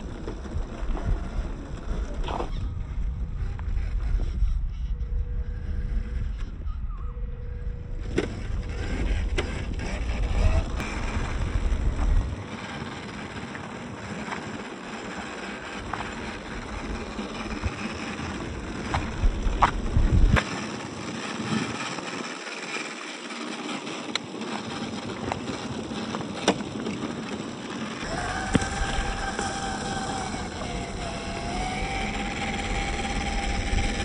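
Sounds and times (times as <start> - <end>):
wind buffeting microphone: 0.0 - 22.3, 24.5 - 34.0
tyres crunching on gravel: 8.3 - 22.2, 24.2 - 34.0.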